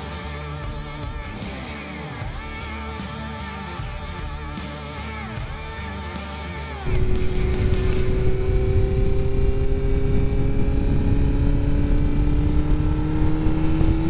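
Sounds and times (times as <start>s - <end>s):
motorcycle engine running: 0.0s - 14.0s
low rumble: 6.9s - 14.0s.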